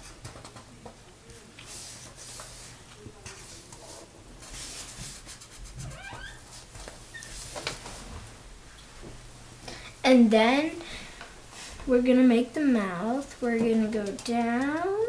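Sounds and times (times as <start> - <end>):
markers scratching on paper: 1.6 - 6.4.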